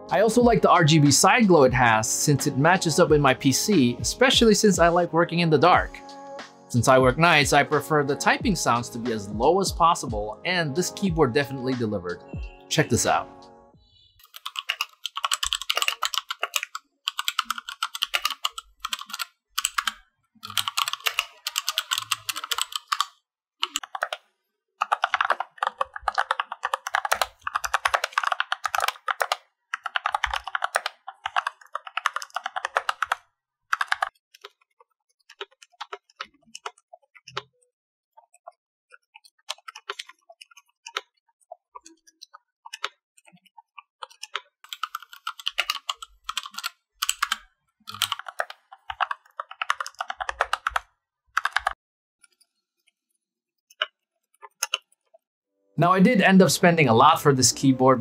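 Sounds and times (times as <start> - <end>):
loud mechanical keyboard clicks: 14.2 - 24.2, 24.8 - 33.2, 33.8 - 34.5, 44.0 - 50.8, 51.4 - 51.8, 54.5 - 54.9
muted keyboard typing: 14.2 - 53.0, 53.7 - 55.2.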